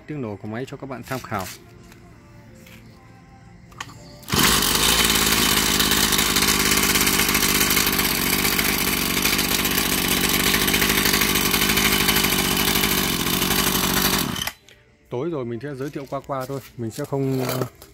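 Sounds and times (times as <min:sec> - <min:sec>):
brush cutter engine running: 0:04.2 - 0:14.6.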